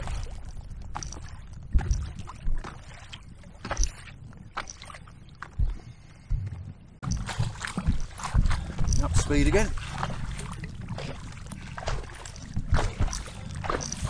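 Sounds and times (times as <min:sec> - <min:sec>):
wind rumbling on microphone: 0:00.0 - 0:14.0
rush of water and wind: 0:07.0 - 0:14.0.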